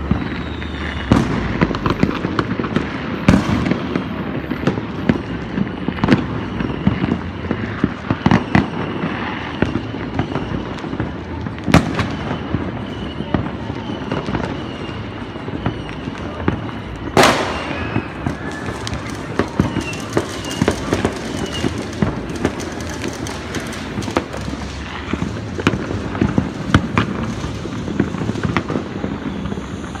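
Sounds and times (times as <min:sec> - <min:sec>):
fireworks popping and banging: 0:00.0 - 0:30.0
loud echoing bang: 0:17.2 - 0:27.3.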